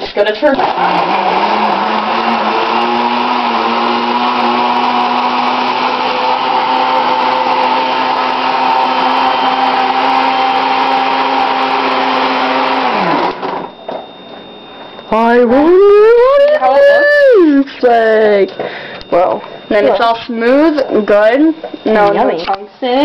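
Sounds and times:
blender motor running: 0.4 - 13.8.

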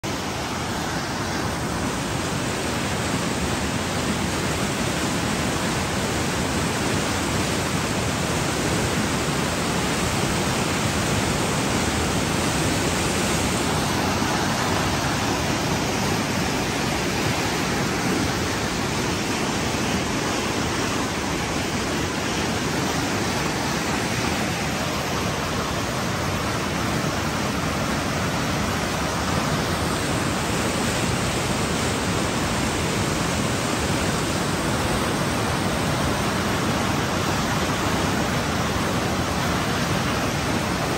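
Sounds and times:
water rushing over rocks: 0.0 - 40.9.

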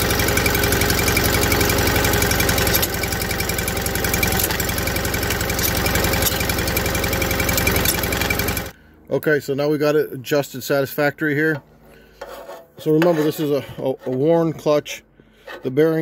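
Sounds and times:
garden tractor engine running: 0.0 - 8.9.

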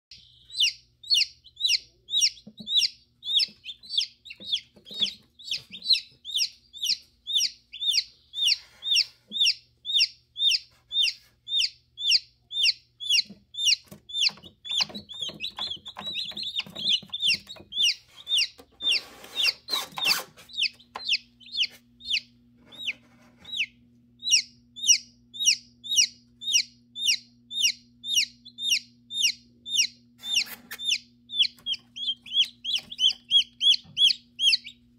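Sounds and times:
chick peeping: 0.1 - 34.9
rustling and knocking: 13.3 - 19.0.

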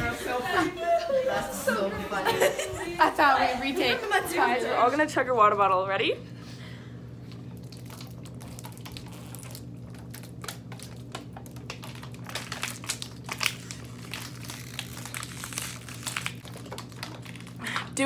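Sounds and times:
steady low hum: 0.0 - 18.0
plastic bottles crinkling: 7.6 - 18.0.

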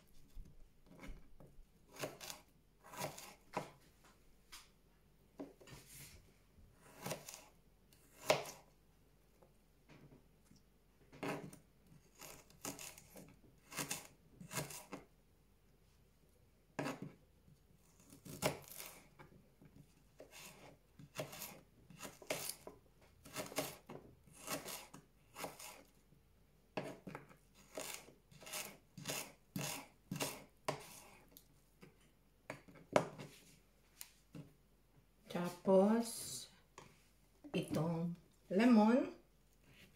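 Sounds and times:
knife slicing on plastic board: 1.9 - 3.8, 6.8 - 7.5, 8.1 - 8.6, 11.2 - 15.0, 20.2 - 25.9, 26.8 - 31.4.

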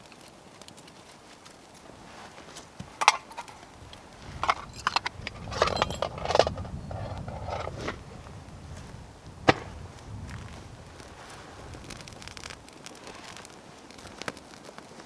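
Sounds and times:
dry twigs crackling and snapping: 0.0 - 5.6, 6.2 - 15.0
shuffling steps on grass: 1.8 - 3.0, 7.2 - 12.1.

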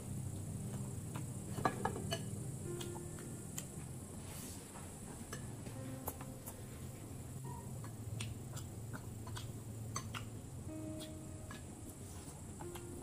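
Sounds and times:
chewing with sharp clicks: 7.8 - 11.7.

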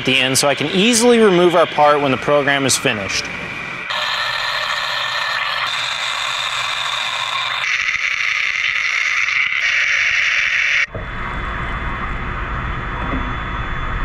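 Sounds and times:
low rushing noise: 10.9 - 14.0.

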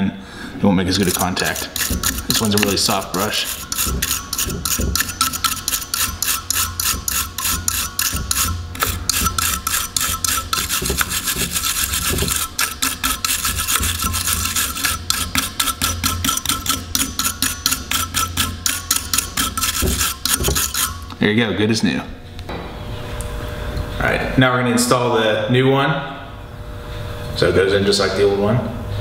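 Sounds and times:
wire brush scrubbing metal: 0.9 - 21.2.

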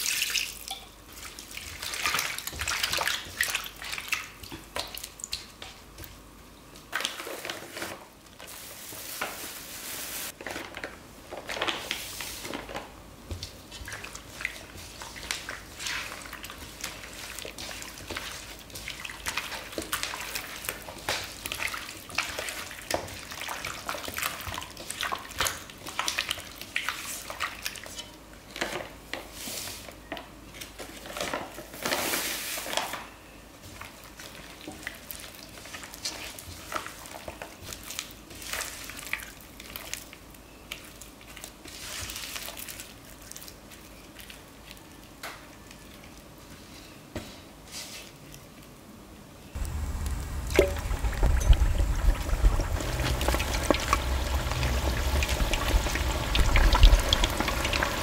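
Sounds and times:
hand squishing wet batter: 13.4 - 28.0.

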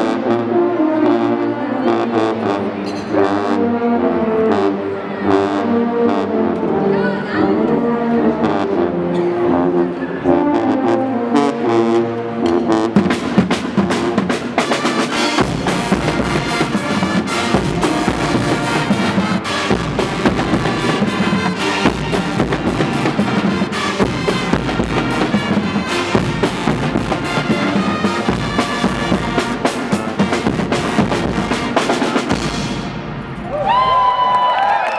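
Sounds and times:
brass band with drums: 0.0 - 33.9.

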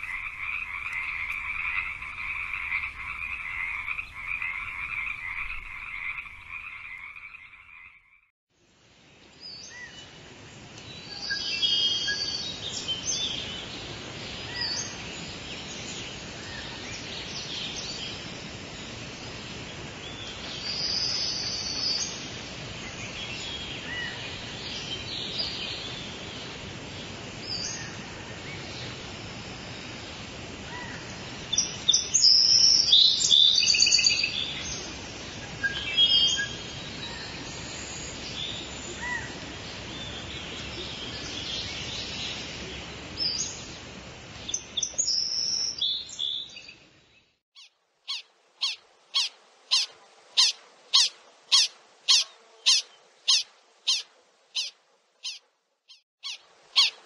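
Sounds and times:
pulsing croaking call: 0.0 - 8.2.

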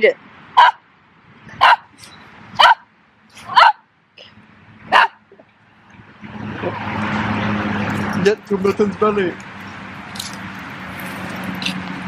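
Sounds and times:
dog barking: 0.6 - 0.8, 1.6 - 1.9, 2.6 - 3.8, 4.9 - 5.2.

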